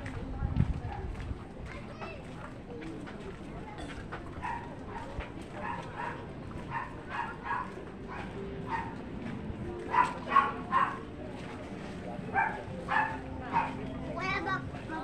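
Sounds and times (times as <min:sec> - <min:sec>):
dog barking: 0:04.4 - 0:09.0, 0:09.9 - 0:11.1, 0:12.3 - 0:13.8.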